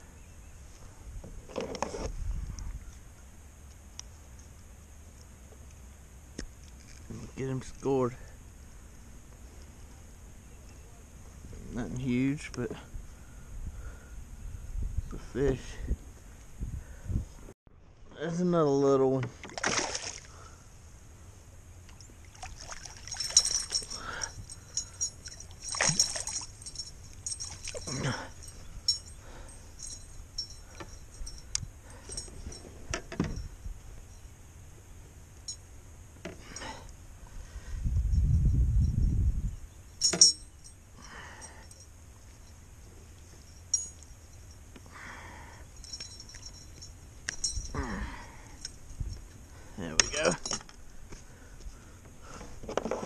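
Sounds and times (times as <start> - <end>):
fish splashing at the surface: 19.5 - 20.3
metal lure clicking and clinking: 23.2 - 29.2, 40.0 - 40.8.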